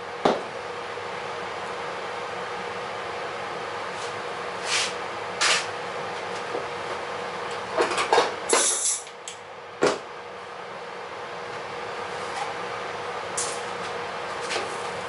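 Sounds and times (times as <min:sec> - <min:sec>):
steady workshop hum: 0:00.0 - 0:15.0
tool knocking on wooden bench: 0:00.2 - 0:00.5.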